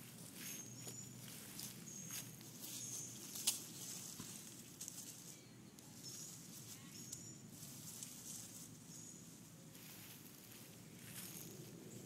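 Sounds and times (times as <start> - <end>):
rustling in dry leaves: 0.0 - 12.0
high faint chirps: 5.3 - 7.6.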